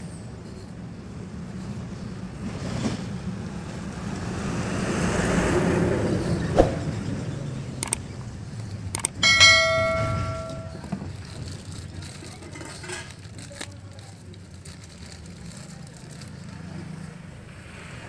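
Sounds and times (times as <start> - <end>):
metallic strike ringing: 9.2 - 10.9.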